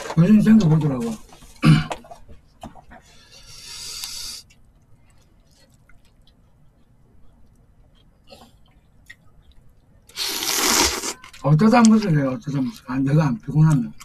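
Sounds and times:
noodles slurped: 0:10.1 - 0:11.4.

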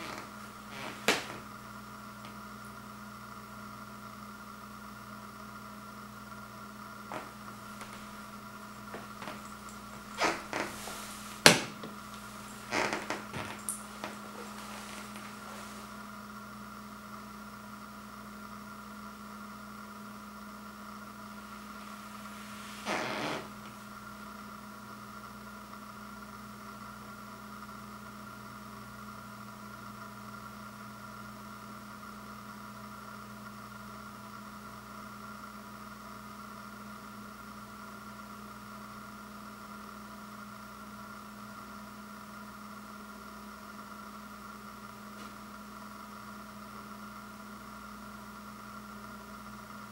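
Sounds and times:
steady multi-tone hum: 0:00.0 - 0:27.4
faint hiss: 0:07.1 - 0:16.2, 0:21.4 - 0:24.0.

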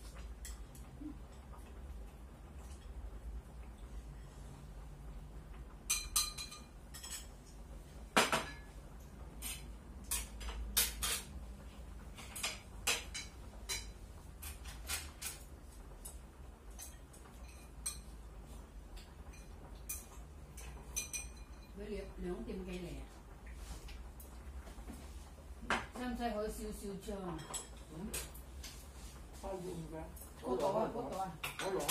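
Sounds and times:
utensils clinking against bowls: 0:05.9 - 0:07.5, 0:09.4 - 0:11.4, 0:16.0 - 0:18.2, 0:19.0 - 0:21.8, 0:27.3 - 0:28.8, 0:31.3 - 0:31.9.

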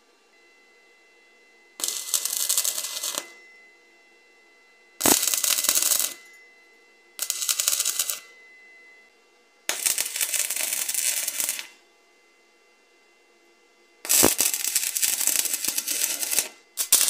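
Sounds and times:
welding arc crackling and sputtering: 0:01.8 - 0:03.4, 0:05.0 - 0:06.2, 0:07.2 - 0:08.2, 0:09.7 - 0:11.8, 0:14.1 - 0:17.0.

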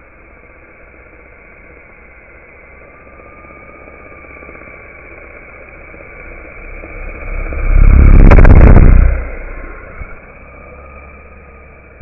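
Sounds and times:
model helicopter rotor whine: 0:00.0 - 0:12.0
rotor downwash buffeting microphone: 0:06.6 - 0:10.2.

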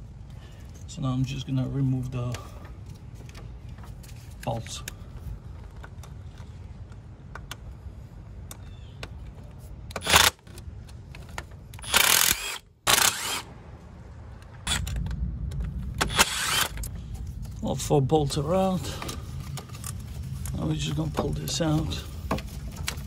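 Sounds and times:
cordless power tool running: 0:11.8 - 0:13.5.

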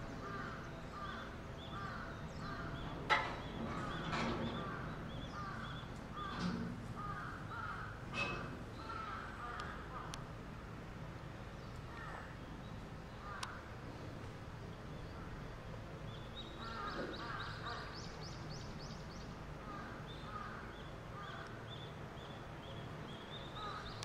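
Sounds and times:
birds calling: 0:00.0 - 0:10.3, 0:11.4 - 0:24.0.

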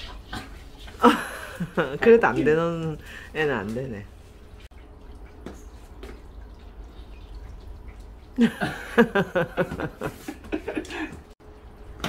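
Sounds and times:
person laughing loudly: 0:08.4 - 0:11.3.

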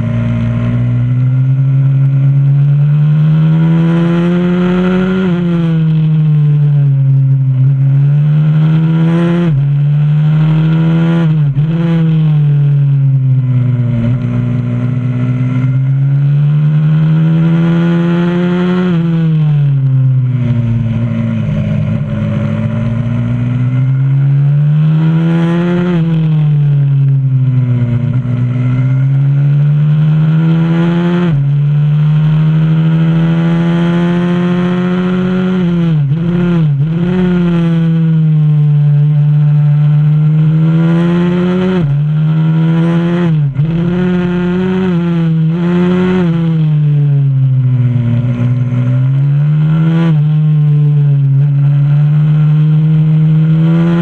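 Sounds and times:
motorcycle engine at full throttle: 0:00.0 - 0:54.0.

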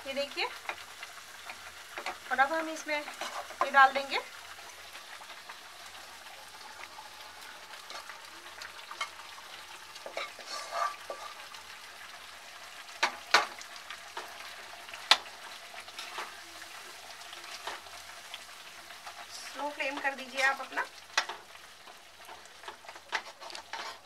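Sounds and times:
low sizzle: 0:00.0 - 0:24.0
spatula scraping a pan: 0:03.0 - 0:03.8, 0:10.0 - 0:11.5, 0:15.8 - 0:16.4, 0:20.3 - 0:24.0.

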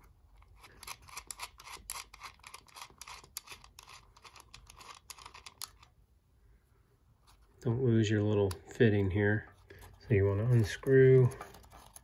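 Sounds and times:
small metal clicks: 0:00.4 - 0:05.9.

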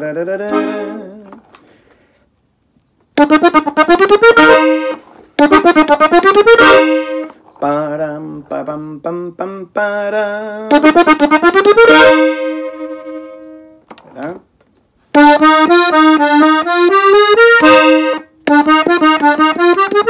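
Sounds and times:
button accordion playing: 0:00.3 - 0:01.3, 0:03.2 - 0:07.9, 0:10.6 - 0:13.8, 0:15.1 - 0:20.0.

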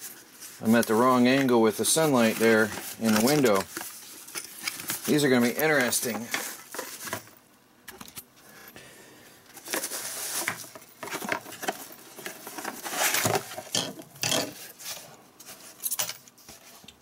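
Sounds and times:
bubble wrap crinkling: 0:00.0 - 0:07.1, 0:09.6 - 0:13.6
cardboard rustling: 0:00.0 - 0:07.3, 0:09.5 - 0:13.7.

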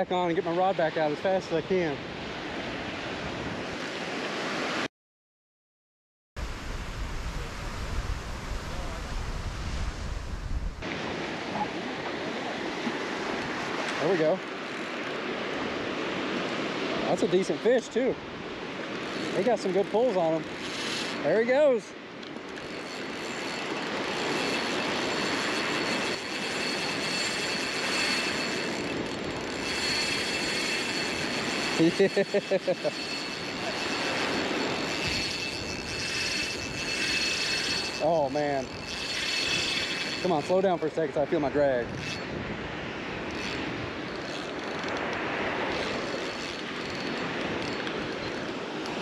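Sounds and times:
fishing reel drag buzzing: 0:18.5 - 0:40.7, 0:41.8 - 0:42.4, 0:43.2 - 0:49.0.

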